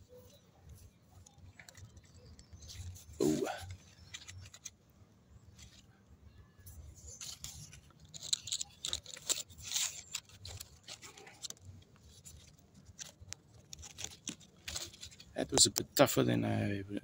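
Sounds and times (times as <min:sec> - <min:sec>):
leaves rustling and crackling: 0:07.0 - 0:15.4.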